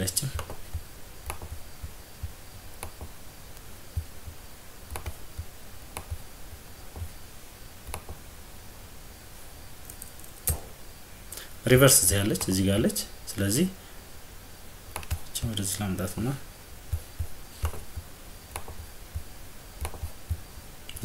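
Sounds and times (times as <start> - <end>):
computer mouse clicking: 0.3 - 3.2, 4.0 - 6.2, 7.9 - 8.2, 14.9 - 15.3, 16.9 - 21.0.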